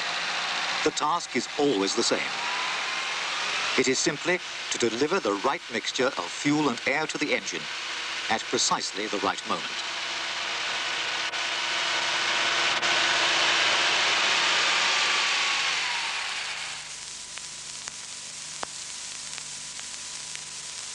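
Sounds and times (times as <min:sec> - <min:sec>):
loud rushing hiss: 0:00.0 - 0:20.9
steady hiss: 0:00.0 - 0:20.9.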